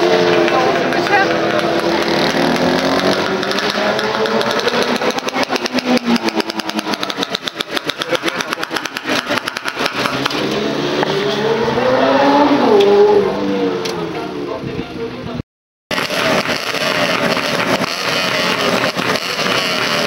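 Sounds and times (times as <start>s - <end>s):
motorcycle engine running: 0.0s - 10.5s, 15.9s - 20.0s.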